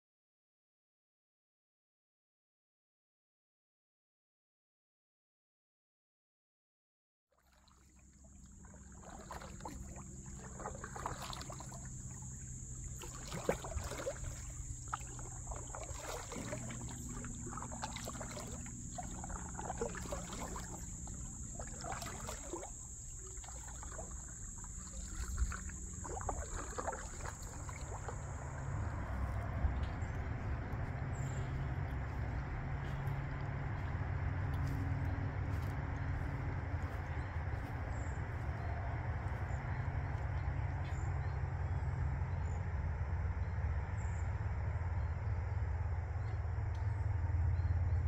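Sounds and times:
canoe paddles splashing water: 0:07.4 - 0:43.1
low hum: 0:08.0 - 0:48.0.

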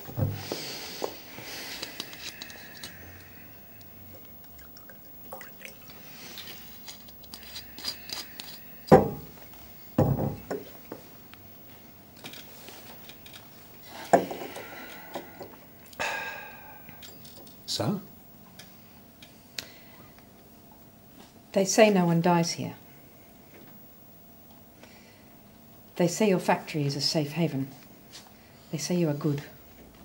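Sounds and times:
drink pouring into glass: 0:04.3 - 0:06.5.

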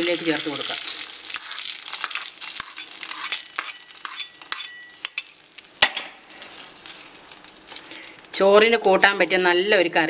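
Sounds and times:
hot oil crackling and sizzling: 0:00.0 - 0:09.8
spoon clinking against pot: 0:01.4 - 0:05.4.

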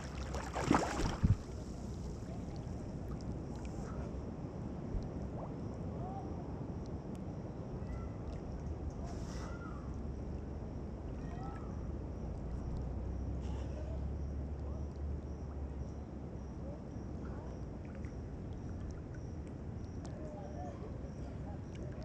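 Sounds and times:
water sloshing around swimmer: 0:00.0 - 0:04.2
wind on microphone: 0:00.0 - 0:06.5.

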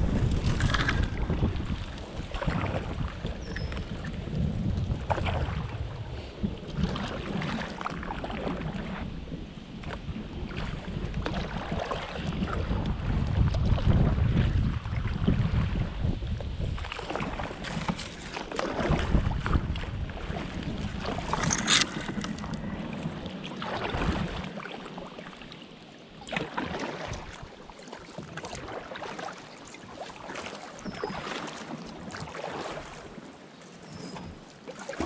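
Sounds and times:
wind rumble on microphone: 0:00.0 - 0:25.6
paddle strokes and splashes: 0:00.0 - 0:35.0
plants brushing along hull: 0:16.6 - 0:19.6, 0:20.8 - 0:24.5.

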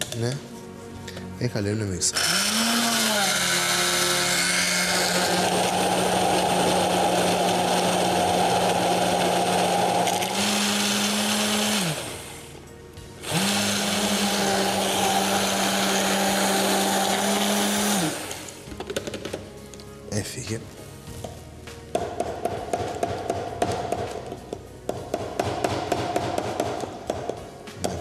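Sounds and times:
immersion blender motor running: 0:02.2 - 0:12.5, 0:13.2 - 0:18.6.

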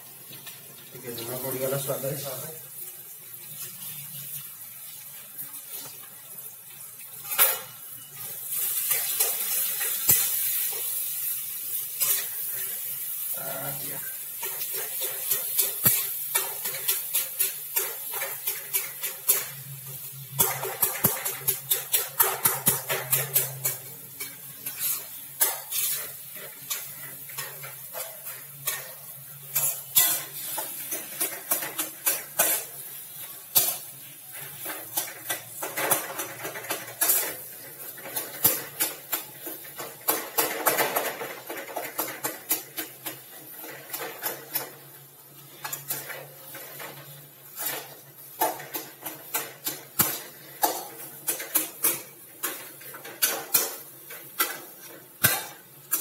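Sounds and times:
metal spatula scraping a pan: 0:07.1 - 0:56.0.

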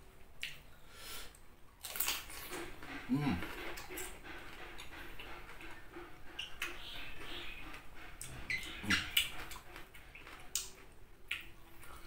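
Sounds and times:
wet mouth clicks: 0:10.5 - 0:12.0.

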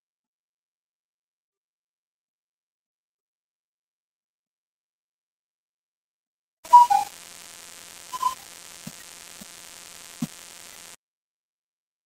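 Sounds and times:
short tone blips: 0:06.7 - 0:08.8
hiss and electrical hum: 0:06.8 - 0:11.0.

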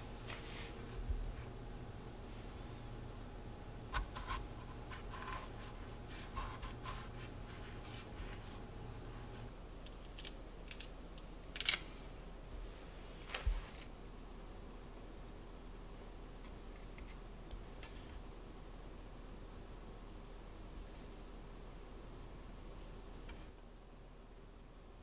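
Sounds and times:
knife cutting fruit on wooden board: 0:03.9 - 0:08.4.

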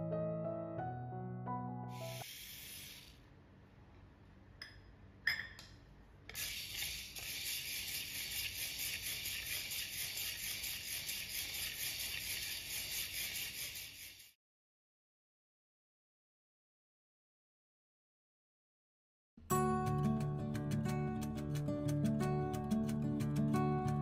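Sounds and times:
beans poured into pot: 0:06.3 - 0:14.4.

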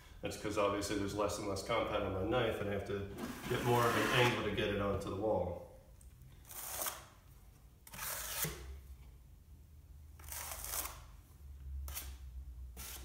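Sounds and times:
taping knife scraping compound pan: 0:03.2 - 0:04.4.

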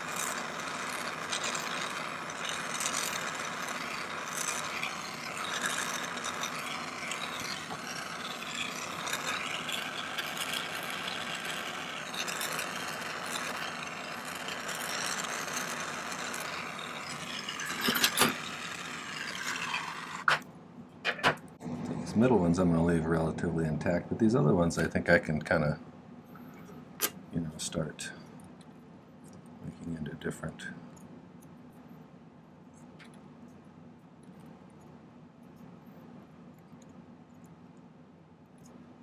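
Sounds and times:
gas torch hissing: 0:00.0 - 0:20.4.

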